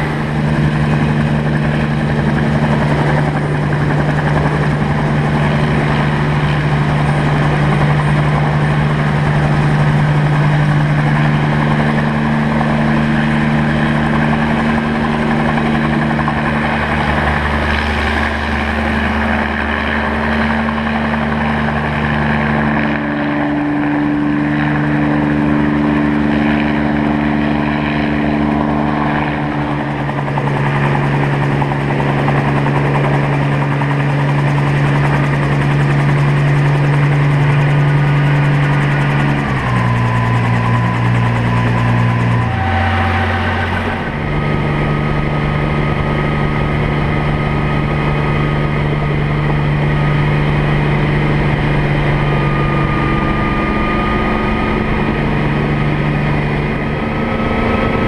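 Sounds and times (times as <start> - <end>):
helicopter hovering: 0.0 - 58.0.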